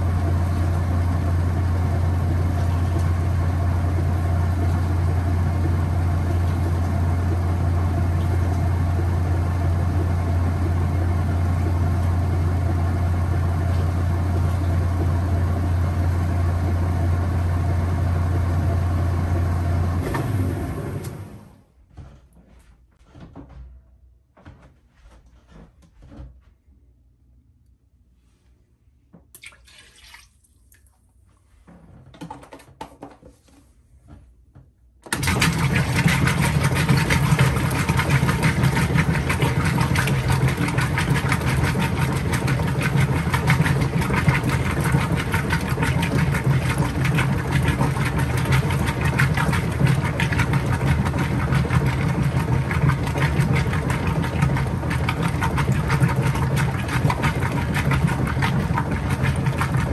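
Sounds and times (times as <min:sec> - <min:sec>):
washing machine agitator churning: 0:00.0 - 0:21.5, 0:29.4 - 0:30.3, 0:35.0 - 0:59.9.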